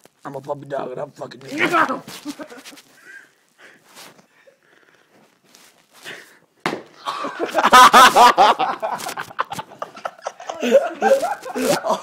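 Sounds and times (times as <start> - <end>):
slap-like hit: 6.6 - 7.0
men crying out and laughing: 7.0 - 12.0.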